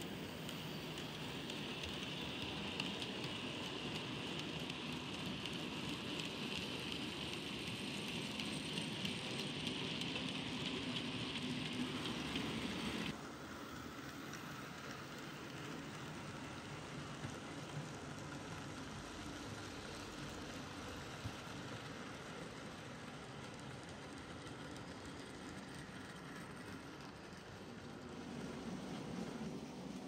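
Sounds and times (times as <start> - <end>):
model train wheels rattling: 0.0 - 16.4.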